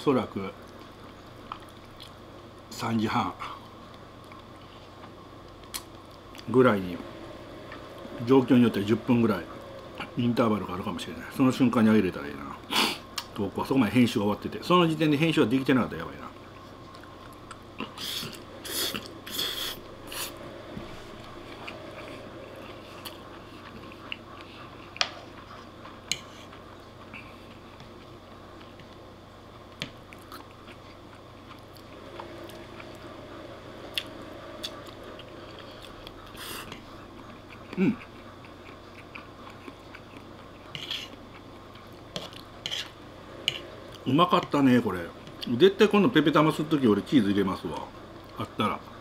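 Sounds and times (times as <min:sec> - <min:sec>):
person chewing: 0:16.5 - 0:20.4, 0:21.2 - 0:29.0, 0:29.8 - 0:33.0, 0:33.9 - 0:44.0
person slurping noodles: 0:17.8 - 0:20.4.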